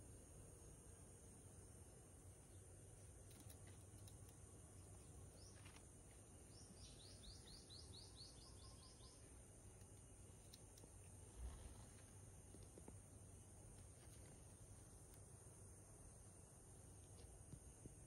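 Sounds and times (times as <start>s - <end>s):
faint bird chirps: 2.3s - 12.2s.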